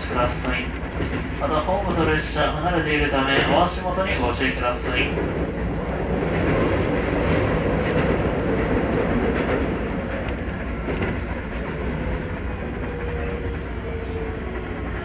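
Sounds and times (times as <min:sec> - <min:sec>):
train wheels rumbling on rail: 0:00.0 - 0:15.0.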